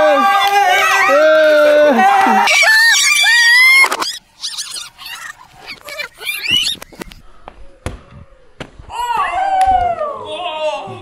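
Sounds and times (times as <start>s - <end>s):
children calling out: 0.2s - 6.8s.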